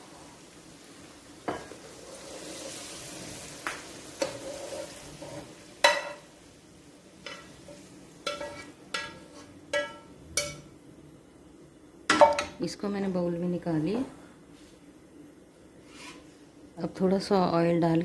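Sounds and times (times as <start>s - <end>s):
faint sizzle: 0.0s - 18.0s
chicken scraped from frying pan: 4.2s - 5.5s, 15.8s - 16.3s.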